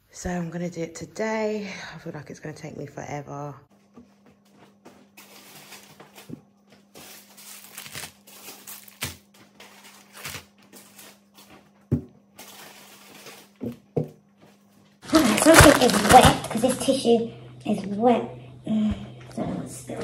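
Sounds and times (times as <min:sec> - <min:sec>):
faint low hum: 0:00.1 - 0:20.0
plastic wrappers crinkling: 0:05.2 - 0:11.7, 0:12.4 - 0:13.8, 0:15.0 - 0:17.0.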